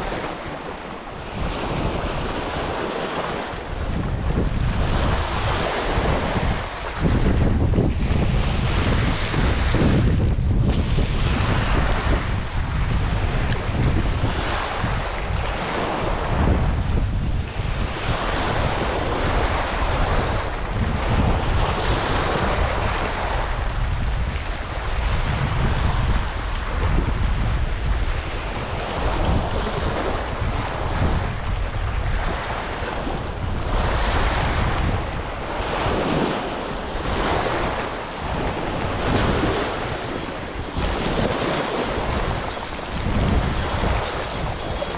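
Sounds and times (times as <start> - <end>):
waves breaking on stony shore: 0.0 - 44.9
wind buffeting microphone: 0.0 - 44.9.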